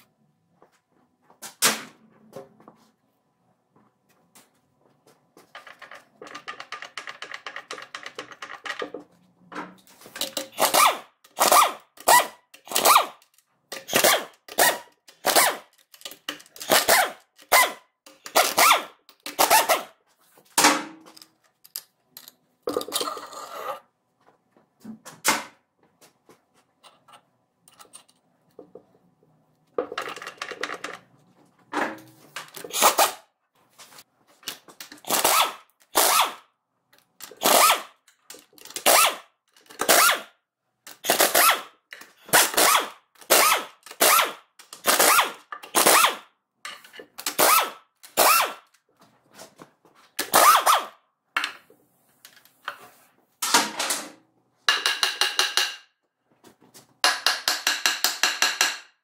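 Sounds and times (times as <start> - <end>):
rapid rattling of tools: 5.4 - 9.1, 10.0 - 19.8.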